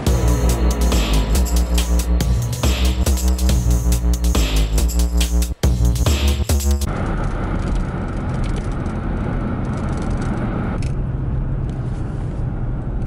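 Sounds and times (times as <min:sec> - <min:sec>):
car road and engine noise: 0:00.0 - 0:05.8, 0:06.8 - 0:13.0
electronic intro music: 0:00.0 - 0:06.9.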